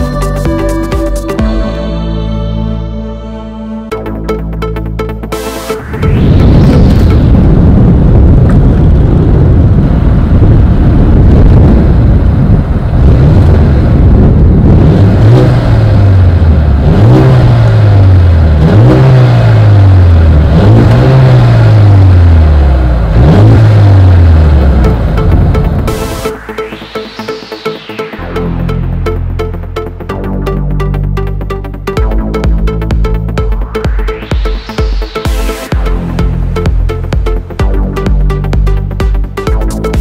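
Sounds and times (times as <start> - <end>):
car engine revving: 4.6 - 40.0
car engine idling: 23.8 - 27.9.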